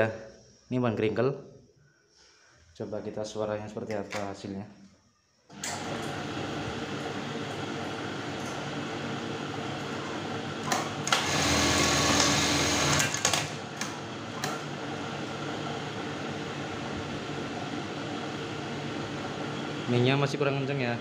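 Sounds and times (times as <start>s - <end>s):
sewing machine stitching: 10.6s - 13.7s
sewing machine motor humming: 10.6s - 14.0s.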